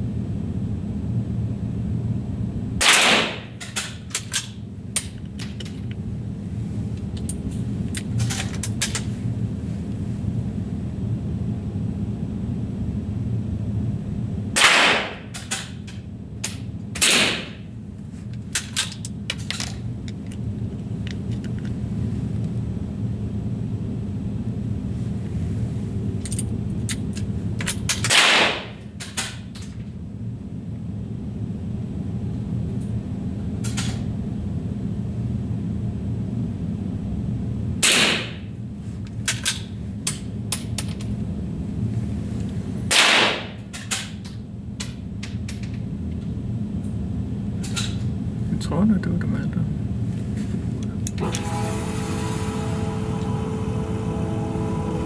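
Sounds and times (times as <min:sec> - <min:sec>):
steady low hum: 0:00.0 - 0:55.0
rifle shots: 0:02.8 - 0:03.5, 0:14.6 - 0:15.2, 0:17.0 - 0:17.6, 0:28.1 - 0:28.7, 0:42.9 - 0:43.5.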